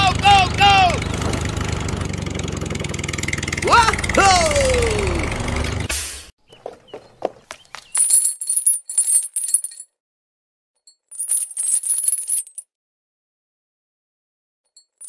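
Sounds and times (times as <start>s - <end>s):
metal chain clinking: 7.8s - 10.0s, 10.9s - 12.7s.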